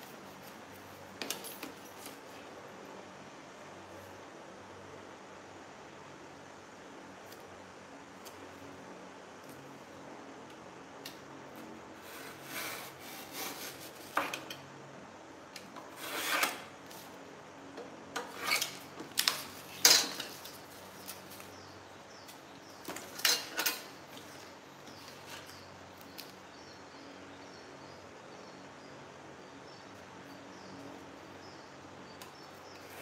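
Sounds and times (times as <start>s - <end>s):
scraping and rubbing strokes: 12.0s - 14.5s, 15.8s - 17.2s, 18.2s - 21.5s.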